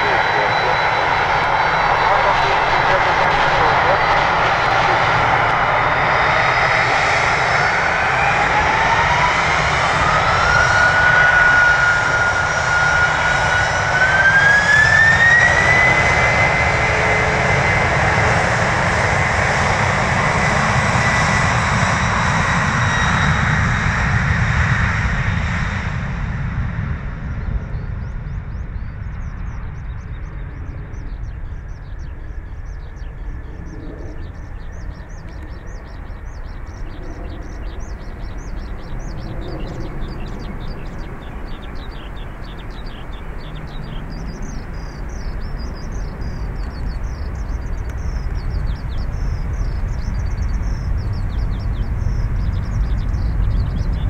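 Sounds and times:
jet engine roar: 0:00.0 - 0:54.0
jet engine whine climbing: 0:00.0 - 0:54.0.

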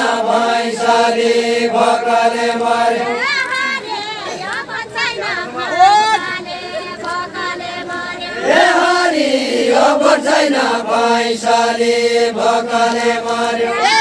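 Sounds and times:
men singing in unison: 0:00.0 - 0:03.2, 0:08.4 - 0:14.0.

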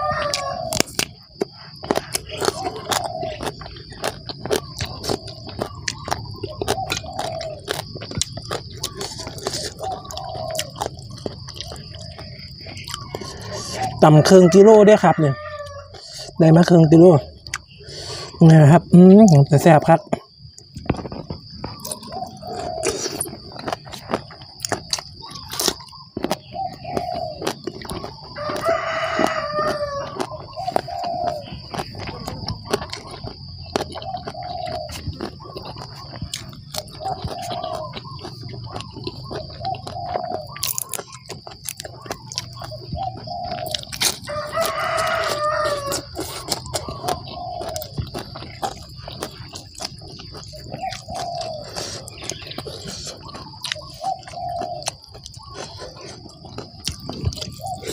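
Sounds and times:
rooster crowing: 0:00.0 - 0:00.9, 0:12.8 - 0:16.5, 0:28.3 - 0:33.2, 0:42.5 - 0:48.1
chickens clucking: 0:00.0 - 0:57.9
crunchy chewing: 0:00.0 - 0:57.9.

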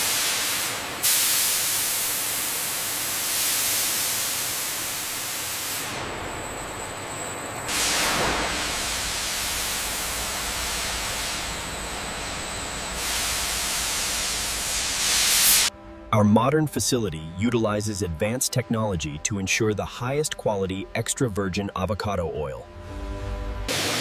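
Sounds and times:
steam hissing: 0:00.0 - 0:06.2, 0:07.7 - 0:15.7, 0:23.7 - 0:24.0
low hum: 0:05.9 - 0:24.0.

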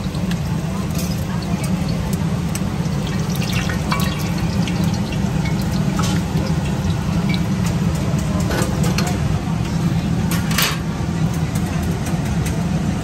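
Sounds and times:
hot oil crackling and sizzling: 0:00.0 - 0:09.4.

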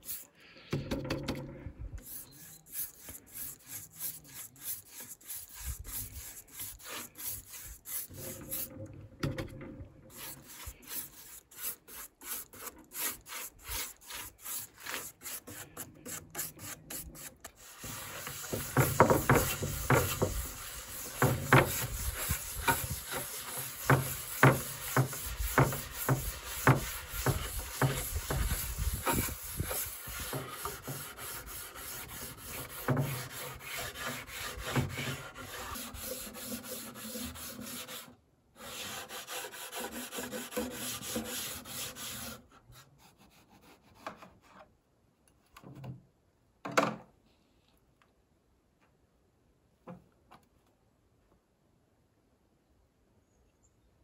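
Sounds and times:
hand tool rasping wooden board: 0:02.0 - 0:08.7, 0:10.1 - 0:42.4.

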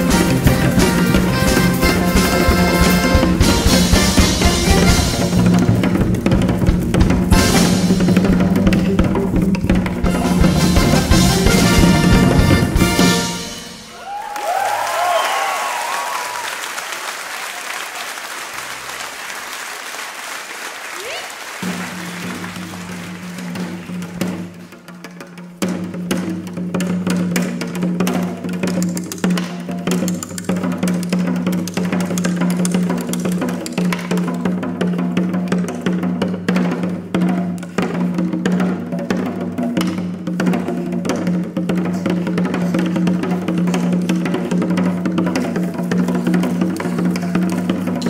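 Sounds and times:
fast dense drumming: 0:00.0 - 0:14.2, 0:21.6 - 0:48.0
live band music: 0:00.0 - 0:15.6, 0:16.3 - 0:48.0
people cheering: 0:13.8 - 0:24.2
audience applauding: 0:13.9 - 0:24.8.

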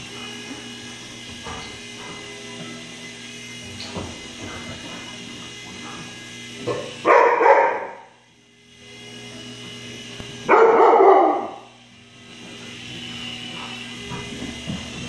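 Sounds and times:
steady electric buzz: 0:00.0 - 0:15.0
puppy barking: 0:06.7 - 0:08.1, 0:10.5 - 0:11.7.

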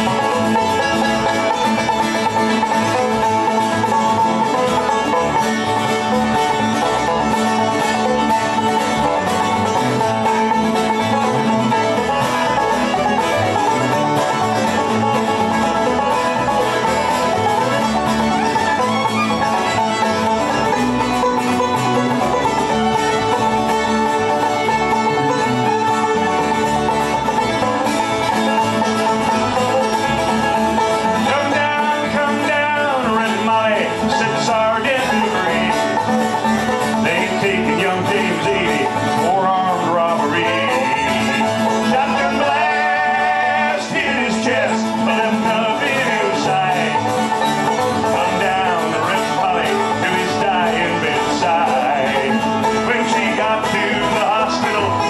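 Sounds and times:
acoustic bluegrass band: 0:00.0 - 0:55.0.

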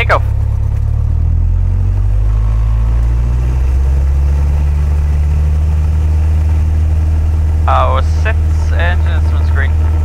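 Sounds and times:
airplane piston engine at full power: 0:02.0 - 0:10.0.

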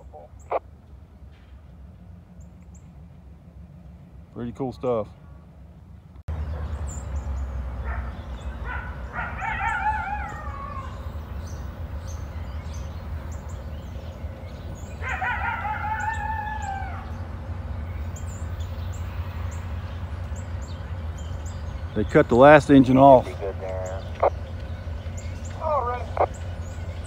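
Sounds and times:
long wavering animal calls: 0:00.0 - 0:00.6, 0:08.6 - 0:11.4, 0:14.7 - 0:18.3, 0:23.1 - 0:27.0
diesel locomotives rumbling: 0:00.0 - 0:27.0.

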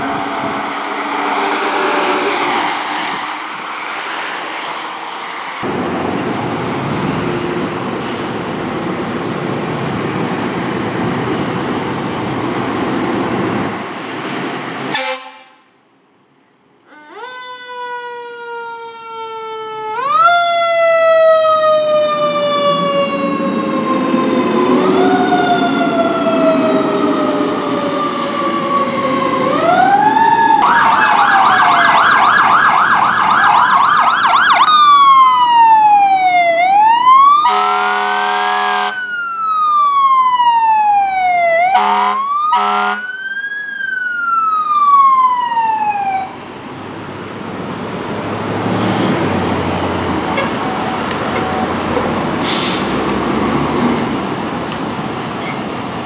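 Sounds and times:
fire truck siren: 0:00.0 - 0:04.7, 0:16.8 - 0:54.8
engine and traffic noise: 0:00.0 - 0:56.0
air horn blasts: 0:14.9 - 0:15.6, 0:37.4 - 0:39.0, 0:41.8 - 0:43.1.

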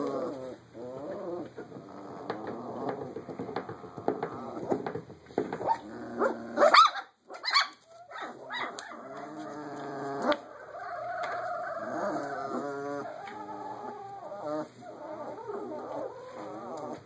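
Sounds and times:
puppies whining and yelping: 0:05.6 - 0:17.0.

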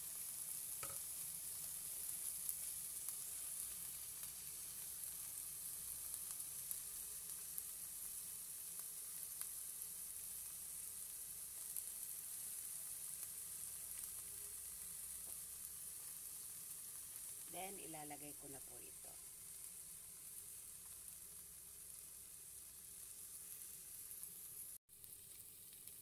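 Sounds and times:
onion sizzling in oil: 0:00.0 - 0:26.0
small oil pops: 0:00.8 - 0:01.0.

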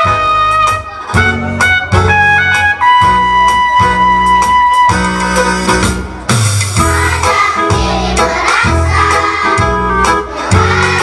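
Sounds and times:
bass line: 0:00.0 - 0:11.0
song melody: 0:00.0 - 0:11.0.

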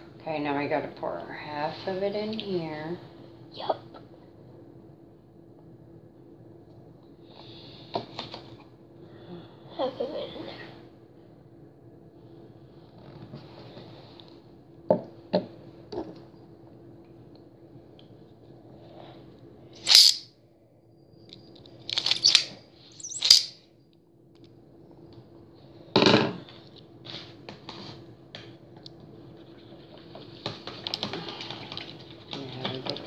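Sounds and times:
faint steady hum: 0:00.0 - 0:33.0
rustling of handled objects: 0:21.9 - 0:23.6.

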